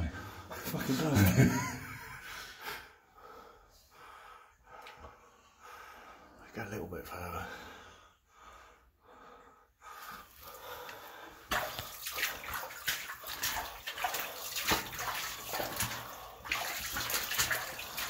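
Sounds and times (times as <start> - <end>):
footsteps splashing through water: 11.5 - 18.0.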